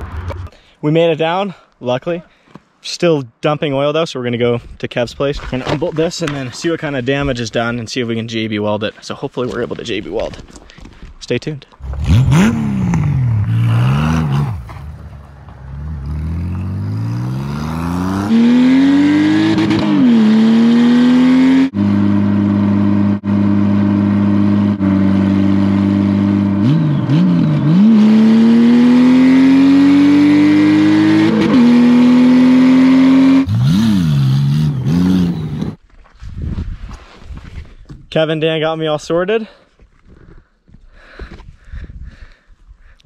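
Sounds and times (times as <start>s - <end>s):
motorcycle engine accelerating: 0.0s - 0.5s, 11.8s - 35.8s
motorcycle engine rev blips: 26.6s - 35.8s.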